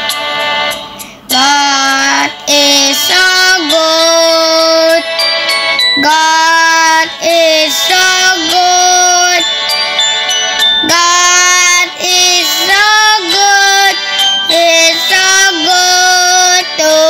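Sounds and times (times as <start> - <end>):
person singing long held notes: 6.0 - 9.4, 10.8 - 17.0.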